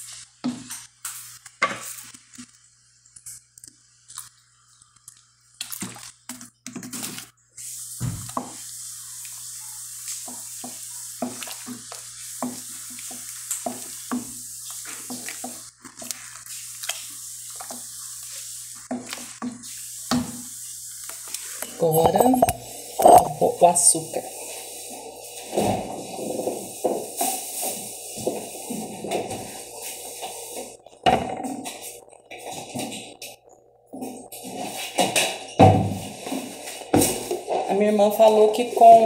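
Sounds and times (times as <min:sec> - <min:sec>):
hot pot hissing and crackling: 0:00.0 - 0:04.4, 0:05.7 - 0:39.0
wooden spoon stirring in a pot: 0:07.9 - 0:33.3, 0:36.0 - 0:39.0
spoon scraping and knocking pot: 0:21.8 - 0:24.0.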